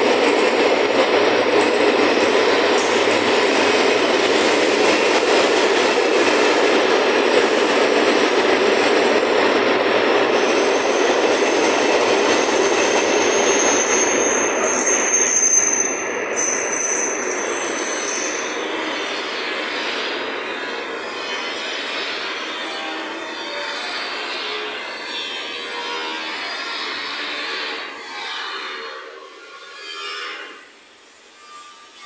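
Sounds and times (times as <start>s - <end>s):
train wheels rumbling on rail: 0.0s - 28.8s
high wheel squeal: 10.3s - 32.0s.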